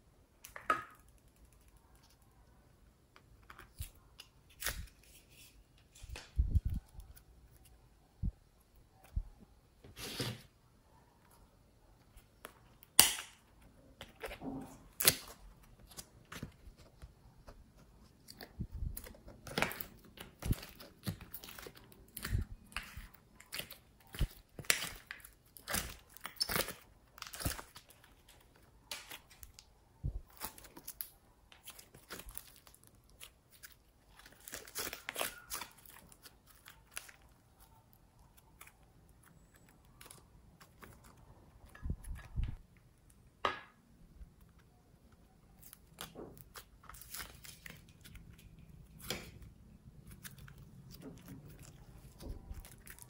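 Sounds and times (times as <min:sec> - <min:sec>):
slime squelching: 0:44.4 - 0:53.0.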